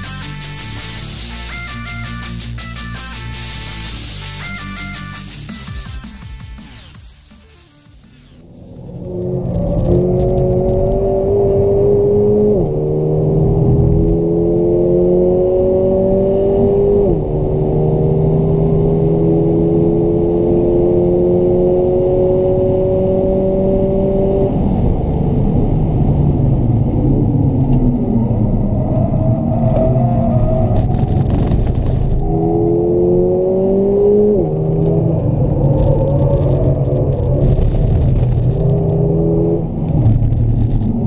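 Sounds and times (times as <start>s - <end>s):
car engine accelerating: 0.0s - 41.0s.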